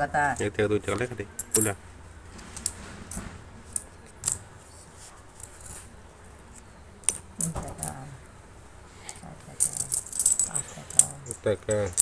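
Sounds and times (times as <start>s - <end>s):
coins clinking on concrete floor: 1.4s - 1.8s, 7.0s - 8.0s, 9.1s - 12.0s.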